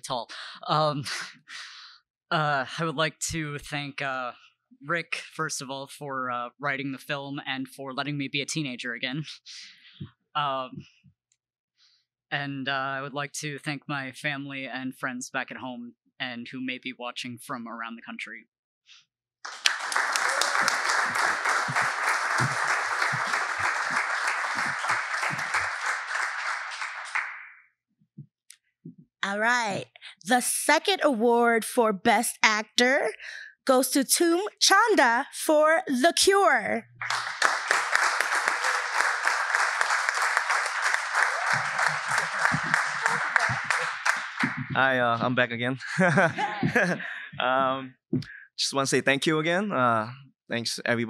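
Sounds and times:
audience applauding: 19.5s - 27.4s, 37.0s - 45.2s.

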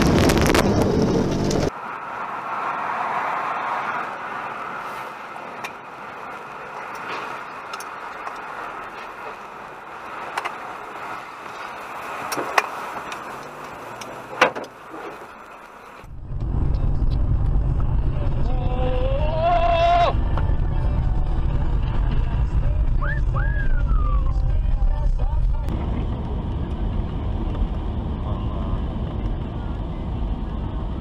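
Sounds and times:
deep rumble: 0.0s - 1.7s, 16.0s - 31.0s
vehicle and road noise: 0.0s - 31.0s.

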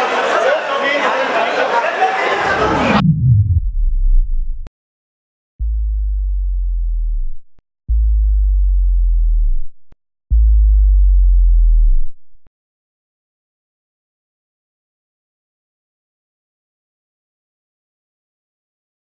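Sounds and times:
deep sub-bass tones: 2.5s - 4.7s, 5.6s - 12.5s.

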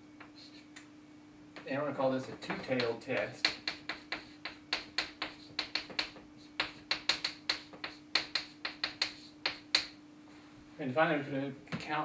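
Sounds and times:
chalk tapping on chalkboard: 0.2s - 0.6s, 2.3s - 10.0s.

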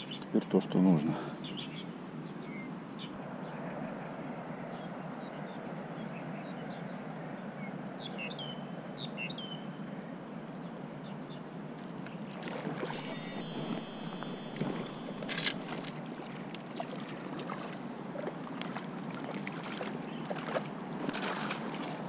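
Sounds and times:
river current running: 12.5s - 22.0s
bird chirps: 13.0s - 16.4s.

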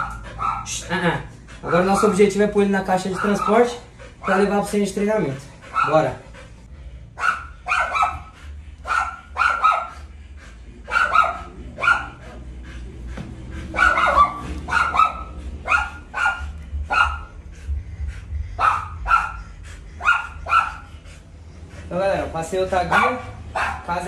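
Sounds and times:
dog barking: 0.0s - 0.8s, 3.0s - 4.5s, 5.7s - 6.1s, 7.2s - 10.1s, 10.9s - 12.3s, 13.7s - 17.3s, 18.6s - 19.4s, 20.0s - 20.9s, 22.9s - 23.9s.

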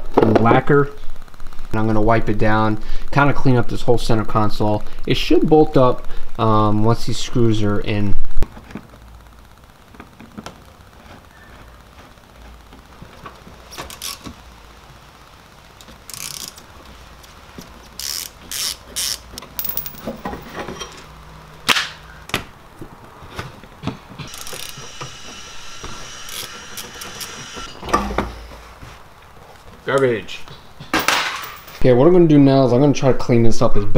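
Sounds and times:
hand tools clicking and scraping: 17.6s - 21.1s, 30.8s - 31.8s.

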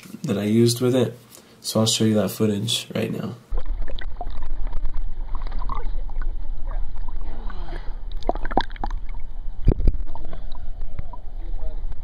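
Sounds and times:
water sloshing and splashing: 3.5s - 11.2s
steady low rumble: 3.5s - 12.0s.

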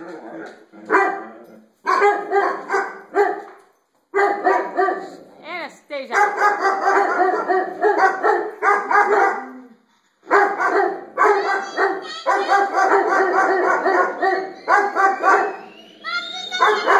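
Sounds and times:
dog barking rapidly: 0.9s - 1.2s, 1.8s - 3.5s, 4.2s - 5.2s, 6.1s - 9.5s, 10.3s - 15.7s, 16.5s - 16.9s.

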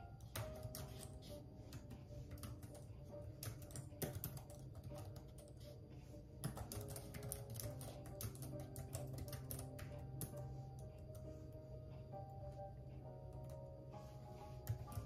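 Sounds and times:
keyboard typing: 0.0s - 5.7s, 6.4s - 11.4s
faint music: 0.0s - 15.0s.

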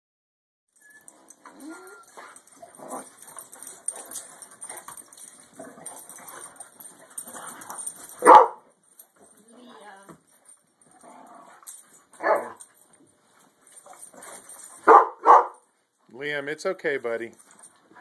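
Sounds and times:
dogs whining: 0.8s - 8.6s.

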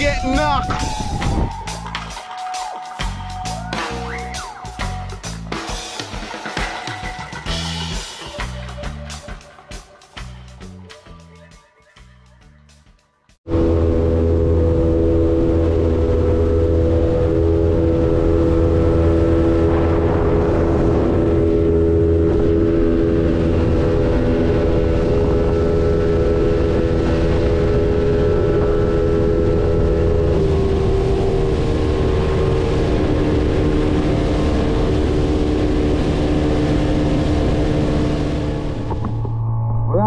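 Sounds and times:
wind noise: 0.0s - 1.7s
boat motor running: 13.5s - 39.5s
water noise: 13.5s - 40.0s.

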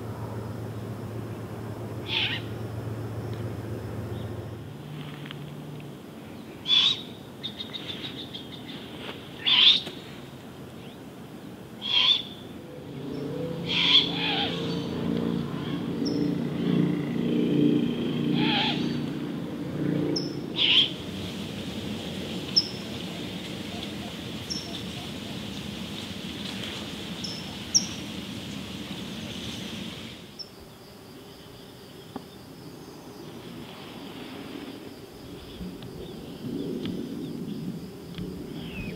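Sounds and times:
owls screeching: 2.0s - 2.5s, 6.6s - 7.0s, 9.4s - 9.8s, 11.8s - 12.3s, 13.6s - 14.7s, 18.4s - 19.0s, 20.6s - 21.0s
small birds chirping: 22.4s - 30.5s.

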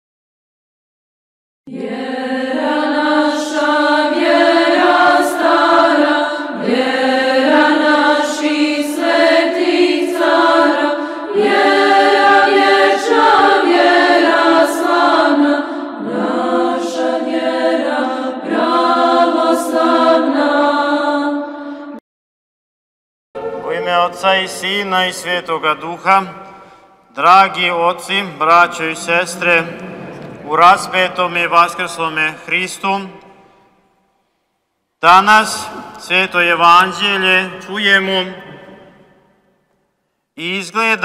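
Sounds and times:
choir chanting: 1.7s - 22.0s, 23.4s - 33.5s.

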